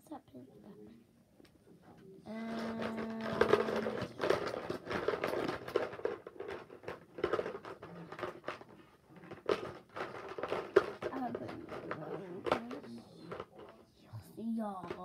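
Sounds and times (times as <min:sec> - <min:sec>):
rummaging in plastic bucket: 0:02.4 - 0:13.8.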